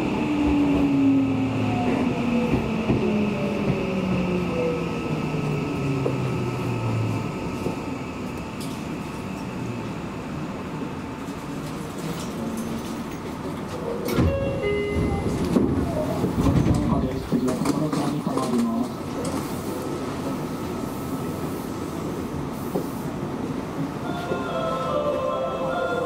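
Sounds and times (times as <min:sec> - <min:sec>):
train doors opening clatter: 0:11.2 - 0:20.4.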